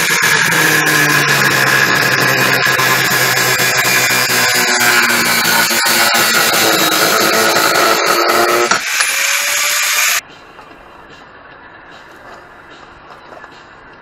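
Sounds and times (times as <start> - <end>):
angle grinder cutting metal: 0.0 - 10.2.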